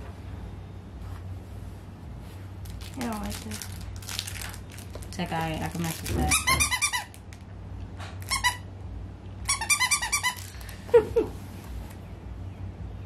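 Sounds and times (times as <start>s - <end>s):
dog toy squeaking: 6.2s - 7.2s, 8.2s - 8.7s, 9.4s - 10.6s.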